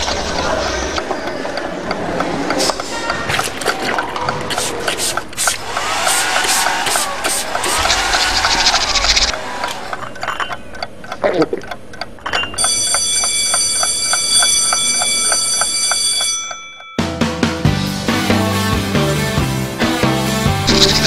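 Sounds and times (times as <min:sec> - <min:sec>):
clock ticking: 0:00.0 - 0:05.6, 0:09.6 - 0:16.9.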